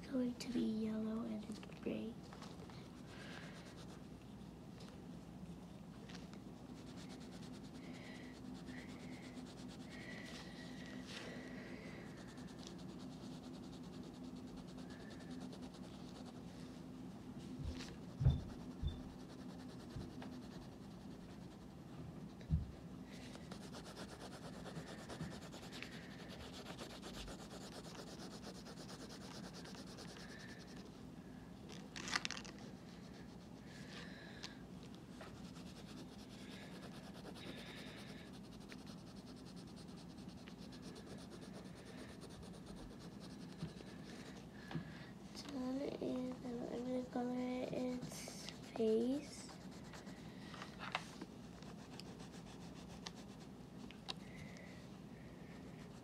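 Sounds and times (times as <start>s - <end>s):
steady low hum: 0.0s - 56.0s
colored pencil shading on paper: 3.0s - 4.1s, 6.6s - 10.7s, 11.9s - 16.6s, 17.9s - 22.4s, 23.3s - 31.0s, 35.1s - 44.3s, 46.4s - 50.3s, 51.5s - 53.5s.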